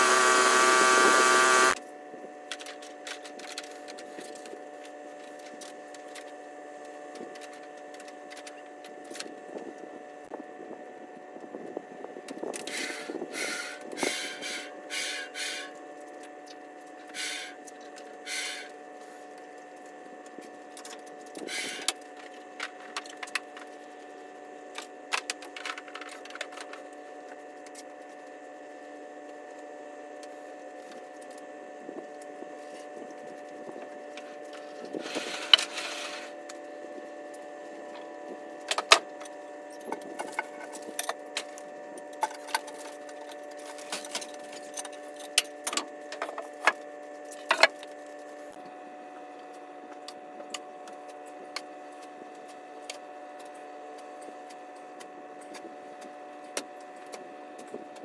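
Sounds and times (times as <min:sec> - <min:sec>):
sawmill engine running: 0:00.0 - 0:01.8.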